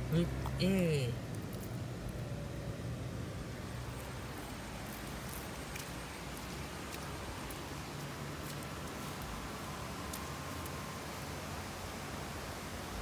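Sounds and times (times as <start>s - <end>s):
low hiss and hum: 0.0s - 13.0s.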